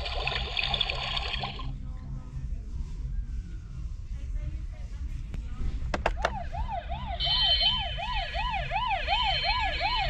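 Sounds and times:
steady high tone: 0:06.7 - 0:10.0
toy electronic siren yelping: 0:06.8 - 0:10.0.

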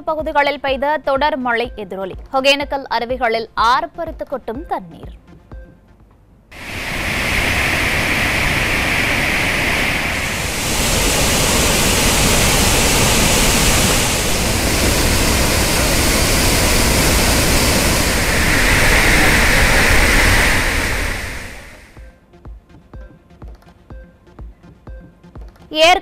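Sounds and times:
roaring white water: 0:06.6 - 0:22.0.

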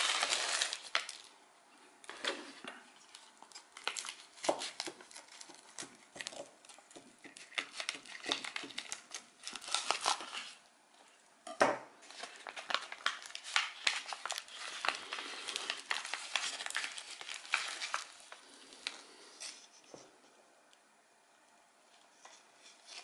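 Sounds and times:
charred potato skin crackling: 0:00.0 - 0:01.3, 0:03.0 - 0:10.6, 0:12.0 - 0:19.6.

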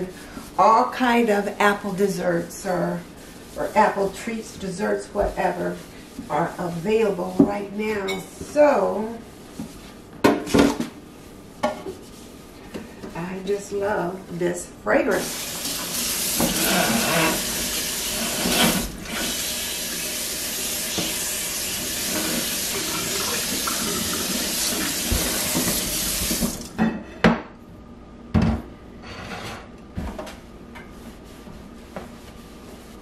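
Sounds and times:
faucet running into sink: 0:15.2 - 0:26.8.

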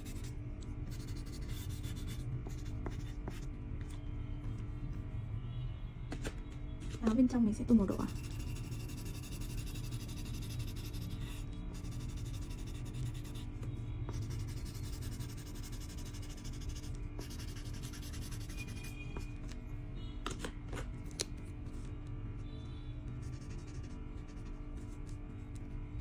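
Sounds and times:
marker scratching on paper: 0:00.0 - 0:00.3, 0:00.9 - 0:03.5, 0:07.9 - 0:13.5, 0:14.1 - 0:19.0, 0:23.2 - 0:25.2.

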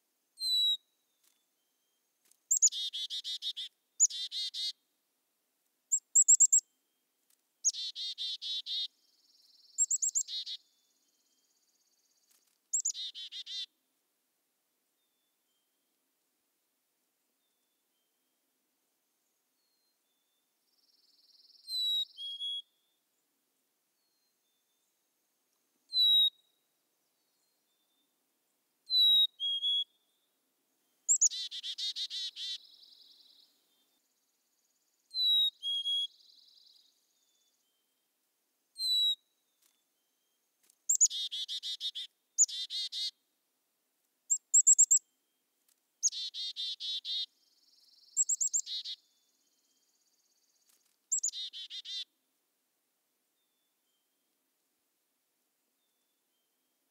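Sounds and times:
chickadee whistled calls: 0:00.4 - 0:00.8, 0:02.5 - 0:04.7, 0:05.9 - 0:06.6, 0:09.7 - 0:10.6, 0:12.7 - 0:13.7, 0:21.4 - 0:22.7, 0:25.9 - 0:26.5, 0:28.9 - 0:30.0, 0:31.1 - 0:33.2, 0:35.1 - 0:36.5, 0:38.8 - 0:39.2, 0:40.9 - 0:43.1, 0:44.3 - 0:45.0, 0:46.0 - 0:47.3, 0:47.9 - 0:49.0, 0:51.1 - 0:52.1
chickadee buzzy calls: 0:02.5 - 0:04.8, 0:07.6 - 0:08.9, 0:12.7 - 0:13.7, 0:31.1 - 0:32.7, 0:40.9 - 0:43.1, 0:44.3 - 0:45.0, 0:46.0 - 0:47.3, 0:48.2 - 0:49.0, 0:51.1 - 0:52.1.

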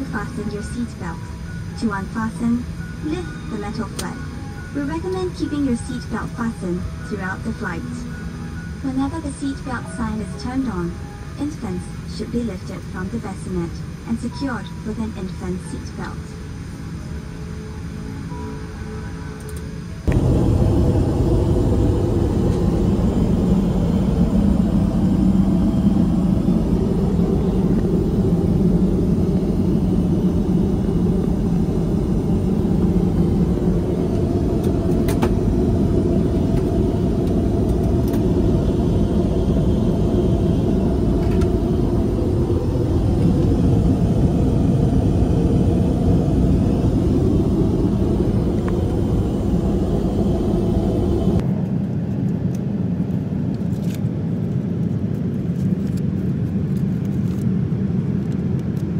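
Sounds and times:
airliner cabin rumble: 0:19.4 - 0:58.9.

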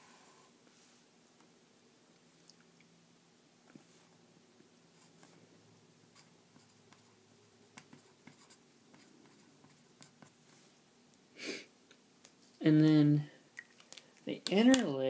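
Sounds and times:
pen scratching on paper: 0:07.7 - 0:10.6.

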